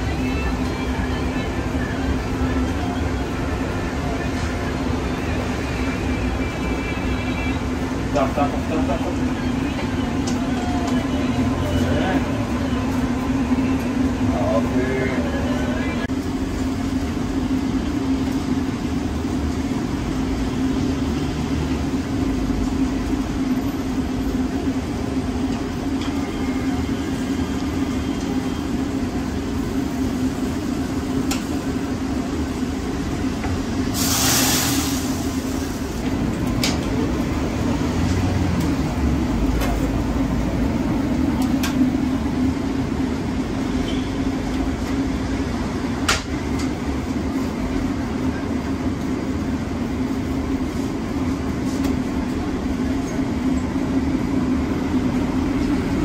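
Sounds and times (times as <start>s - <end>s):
brief hiss: 33.9s - 35.6s.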